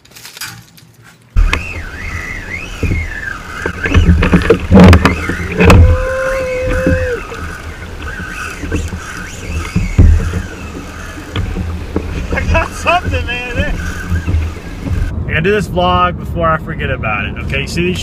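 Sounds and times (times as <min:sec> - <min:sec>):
high-pitched whine: 0:01.4 - 0:15.5
water noise: 0:01.4 - 0:16.0
wind buffeting microphone: 0:01.4 - 0:18.0
knocks against hull: 0:02.7 - 0:15.1.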